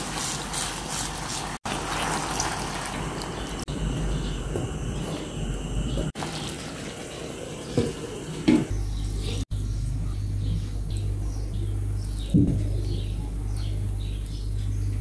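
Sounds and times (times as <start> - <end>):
sauce bubbling in a frying pan: 0.0 - 3.7.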